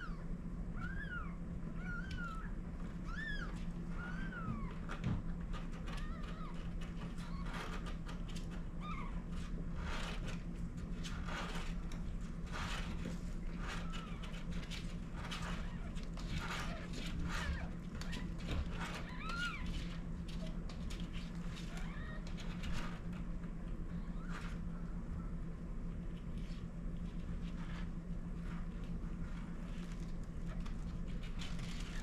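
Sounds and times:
kittens squeaking: 0.0s - 4.9s, 5.8s - 7.9s, 8.8s - 9.4s, 13.5s - 14.6s, 15.2s - 20.6s, 21.6s - 22.4s
low electrical hum: 0.0s - 32.0s
cat licking and shuffling: 25.8s - 32.0s.

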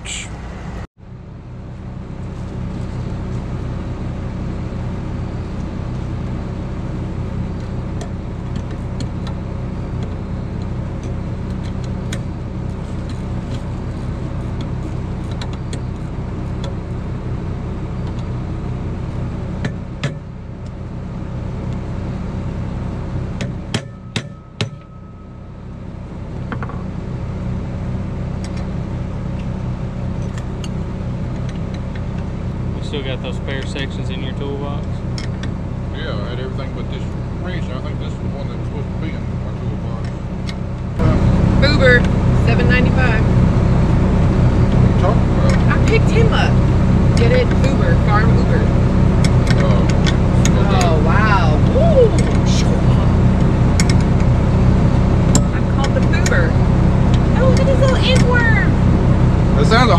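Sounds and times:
engine running steadily: 0.0s - 59.9s
sharp knocks: 23.4s - 25.0s.

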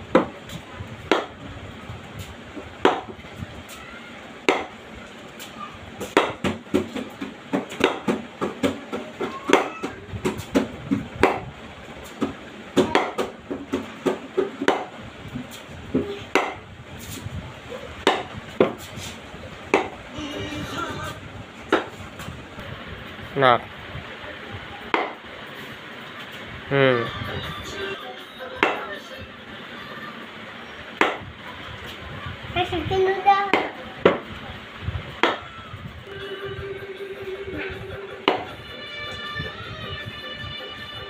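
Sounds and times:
cricket bat knocking ball: 1.1s - 1.3s, 2.8s - 3.1s, 4.4s - 4.7s, 6.1s - 11.4s, 12.2s - 14.9s, 16.3s - 16.6s, 18.0s - 18.8s, 19.7s - 20.0s, 21.7s - 21.9s, 31.0s - 31.2s, 35.2s - 35.4s, 38.3s - 38.5s.

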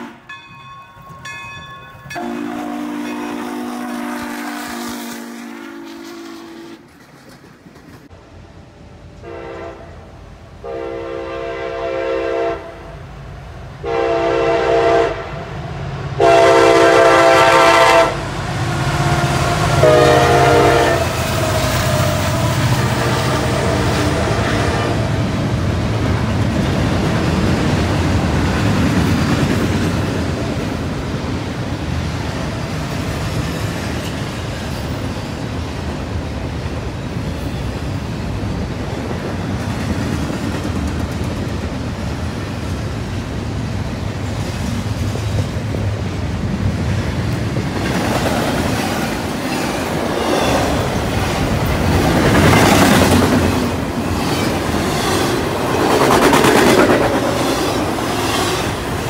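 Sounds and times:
freight train wheels rumbling: 0.0s - 59.0s
wheels clickety-clack: 6.7s - 8.2s, 25.4s - 35.5s, 39.0s - 42.8s, 46.6s - 59.0s.

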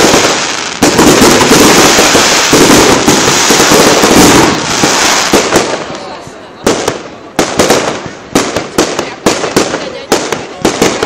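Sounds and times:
fireworks crackling overhead: 0.0s - 11.0s.

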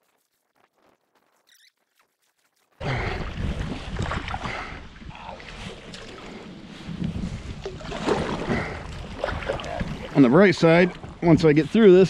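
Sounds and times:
paddle strokes and water splashing: 0.1s - 12.0s
wind rumble on microphone: 2.8s - 12.0s.

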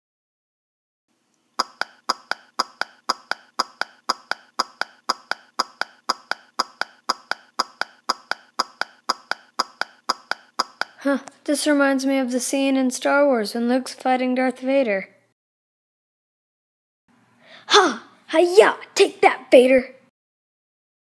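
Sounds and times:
cartoon footsteps clicking: 1.6s - 11.4s.

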